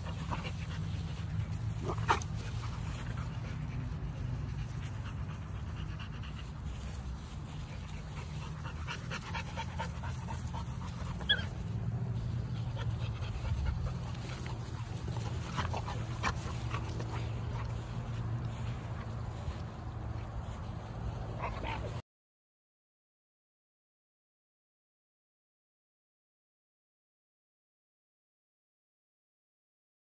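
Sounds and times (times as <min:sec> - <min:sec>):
dogs panting: 0:00.0 - 0:22.0
steady low rumble: 0:00.0 - 0:22.0
dog whimpering: 0:11.2 - 0:11.5.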